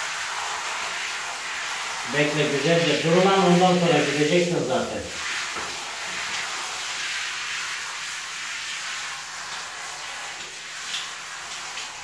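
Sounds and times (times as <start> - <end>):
shower water spraying: 0.0 - 12.0.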